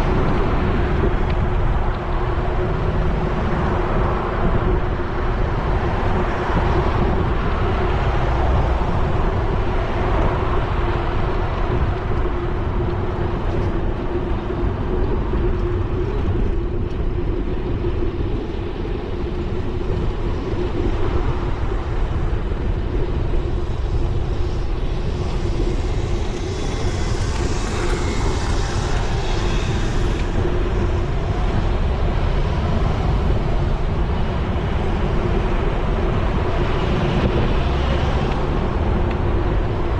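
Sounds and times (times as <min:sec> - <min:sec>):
wind rushing over microphone: 0:00.0 - 0:39.9
car traffic: 0:19.3 - 0:39.9.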